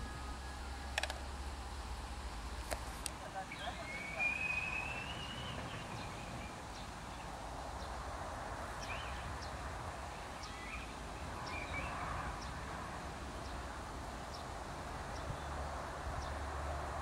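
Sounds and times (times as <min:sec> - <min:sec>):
small birds chirping: 0:02.7 - 0:08.0, 0:08.7 - 0:16.6.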